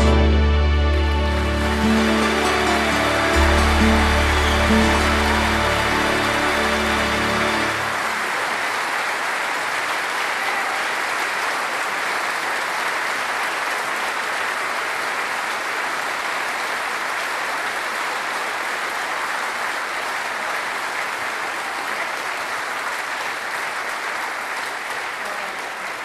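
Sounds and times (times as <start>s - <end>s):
audience applauding: 0.0s - 26.0s.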